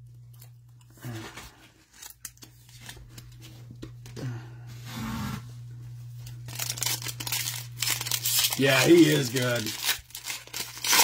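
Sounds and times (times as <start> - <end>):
steady low hum: 0.0 - 11.0
foil card pack rustling: 1.0 - 4.2, 6.2 - 11.0.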